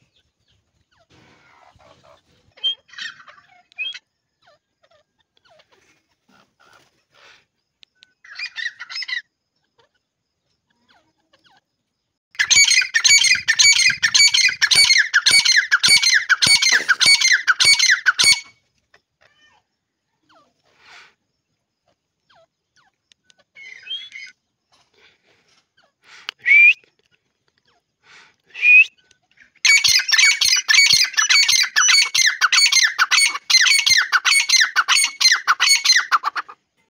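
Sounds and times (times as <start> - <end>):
shrill bird call runs: 12.4 - 18.5, 29.6 - 36.3.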